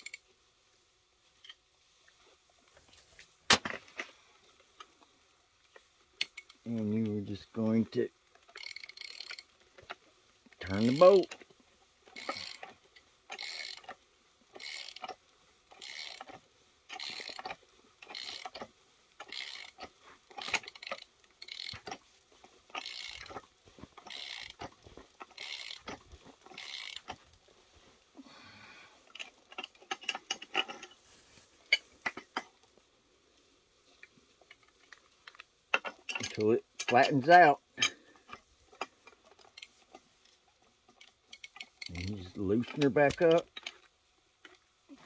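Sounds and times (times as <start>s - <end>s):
socket ratchet clicking: 8.5s - 9.5s, 10.7s - 11.4s, 12.1s - 12.7s, 13.3s - 14.0s, 14.6s - 15.2s, 15.8s - 22.0s, 22.8s - 23.4s, 24.1s - 24.7s, 25.3s - 27.2s, 41.0s - 42.1s.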